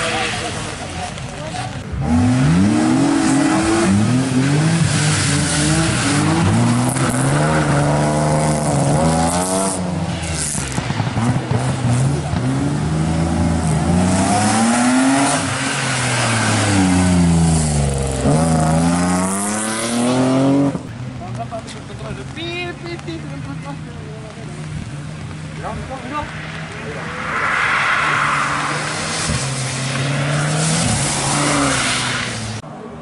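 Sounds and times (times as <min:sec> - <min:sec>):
car engine revving: 0:00.0 - 0:20.9, 0:24.6 - 0:32.6.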